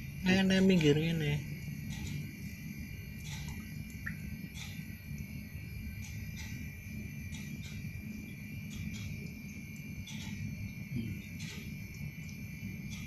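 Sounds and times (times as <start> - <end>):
crickets trilling: 0.0 - 13.0.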